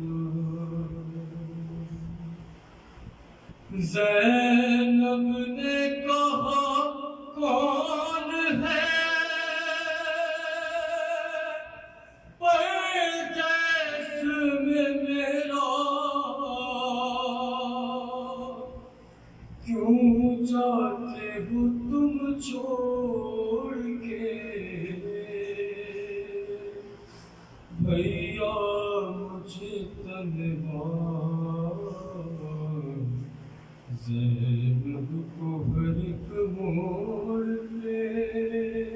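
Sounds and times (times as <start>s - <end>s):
man singing unaccompanied: 0.0s - 2.5s, 3.7s - 18.9s, 19.6s - 27.0s, 27.7s - 38.9s.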